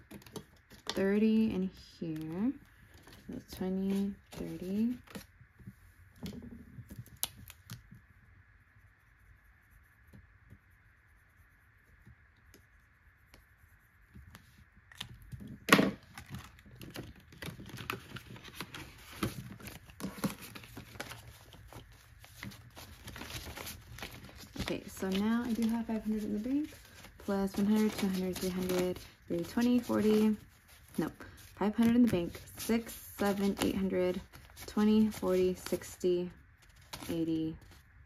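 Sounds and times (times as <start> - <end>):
marker scratching on paper: 8.7 - 14.6
banknotes crinkling being counted: 16.0 - 37.9.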